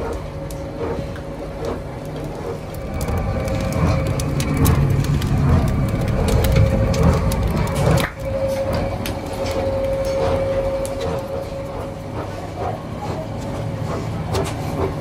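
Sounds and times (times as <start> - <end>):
rubber mill rumbling: 0.0 - 15.0
sharp crackling clicks: 1.6 - 11.8.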